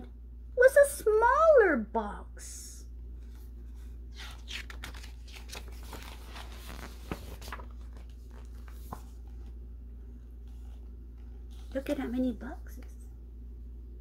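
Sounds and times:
low steady hum: 0:00.0 - 0:14.0
paper rustling and crinkling: 0:03.2 - 0:12.2.

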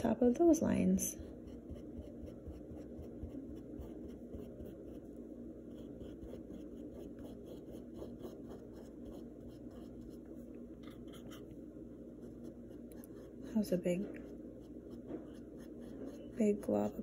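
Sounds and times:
paintbrush dabbing on canvas: 0:01.2 - 0:05.1.

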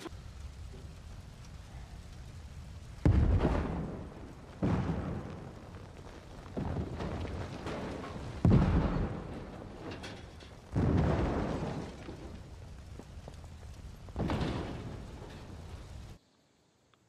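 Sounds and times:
heavy explosion booms: 0:03.0 - 0:13.0, 0:14.0 - 0:16.2.

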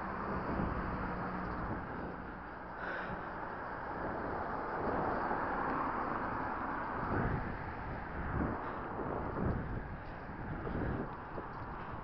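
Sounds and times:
wind and road noise: 0:00.0 - 0:12.0.

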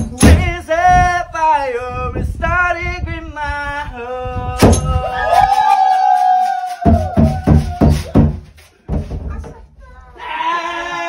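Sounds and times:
heavy thumping beats: 0:00.0 - 0:01.1, 0:06.8 - 0:09.7.

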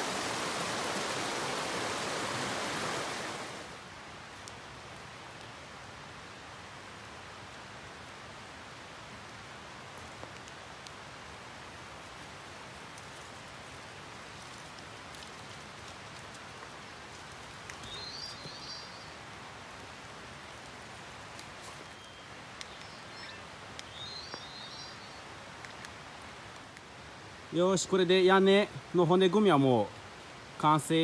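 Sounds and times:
rain falling: 0:00.0 - 0:31.0
bird chirping: 0:17.8 - 0:19.1, 0:21.9 - 0:25.2.

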